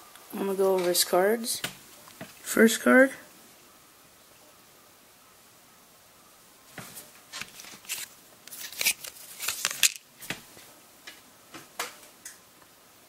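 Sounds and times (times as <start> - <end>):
cards scraping on plastic: 7.3 - 10.0.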